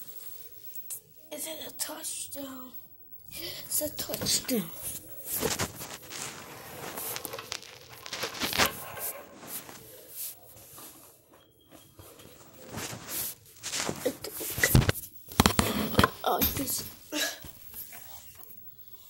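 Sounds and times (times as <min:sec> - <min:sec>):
phone being handled rustling: 0:04.1 - 0:09.9.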